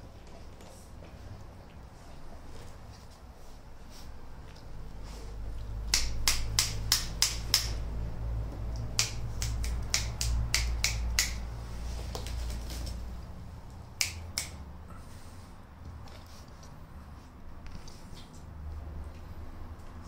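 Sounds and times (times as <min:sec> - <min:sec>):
low steady rumble: 0:00.0 - 0:14.0
sharp clicks: 0:05.9 - 0:07.8, 0:08.7 - 0:11.4.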